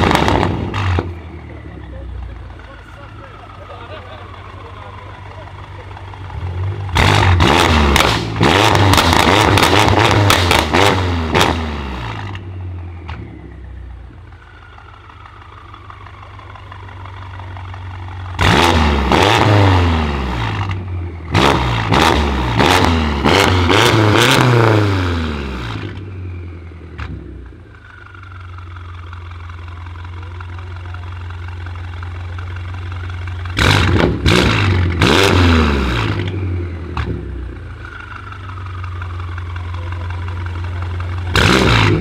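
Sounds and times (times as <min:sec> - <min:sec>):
car engine idling: 0:00.0 - 0:42.0
car engine revving: 0:00.0 - 0:42.0
exhaust crackles: 0:00.0 - 0:42.0.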